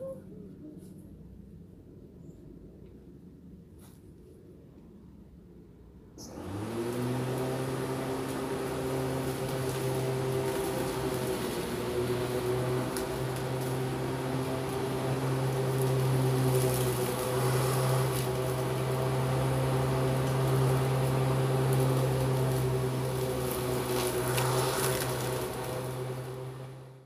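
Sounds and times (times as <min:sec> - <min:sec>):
electric mower motor hum: 0:06.2 - 0:27.0.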